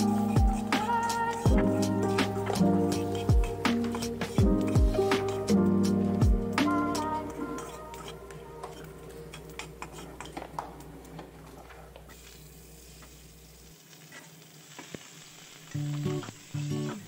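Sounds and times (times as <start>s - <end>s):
faint sizzle of frying: 0.0s - 17.0s
metal spatula scraping pan: 7.3s - 10.4s.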